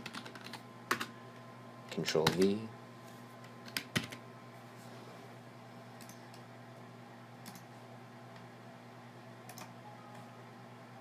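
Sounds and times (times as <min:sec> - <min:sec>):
steady low hum: 0:00.0 - 0:11.0
faint computer clicks: 0:06.0 - 0:06.4.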